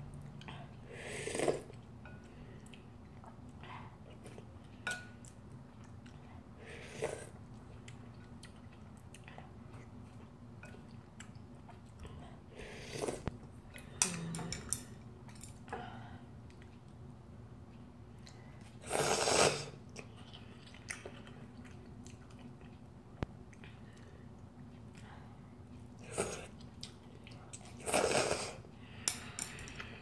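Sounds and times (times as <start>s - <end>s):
loud slurp: 18.9s - 19.7s.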